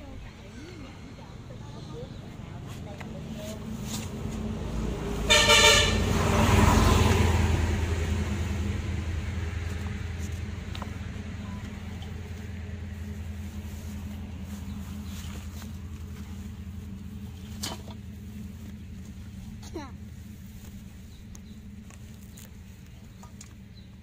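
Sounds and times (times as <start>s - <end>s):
vehicle passing on road: 0.0s - 24.0s
vehicle horn honk: 5.2s - 6.4s.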